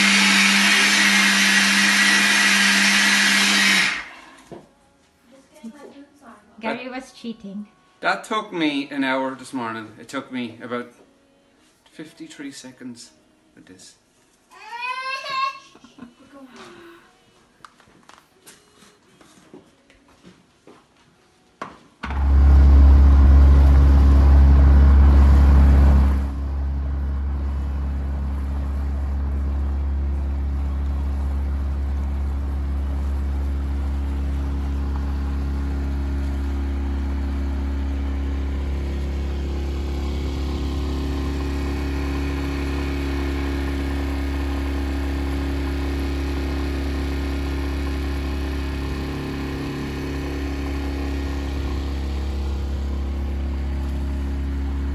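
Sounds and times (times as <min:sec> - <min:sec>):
boat engine droning: 0:22.0 - 0:54.9.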